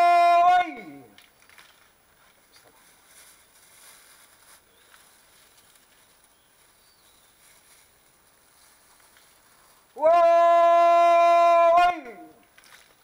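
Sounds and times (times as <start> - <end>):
faint outdoor hiss: 0.0 - 13.0.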